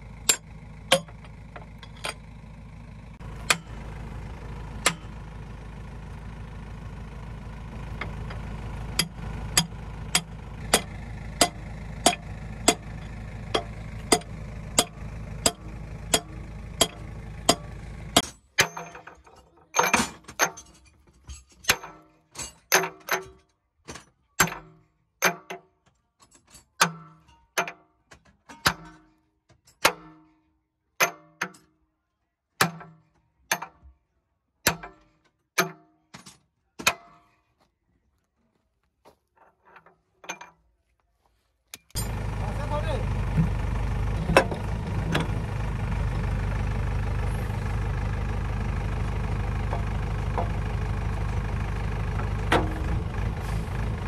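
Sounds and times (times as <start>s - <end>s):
diesel engine idling: 0.0s - 18.3s, 41.9s - 54.0s.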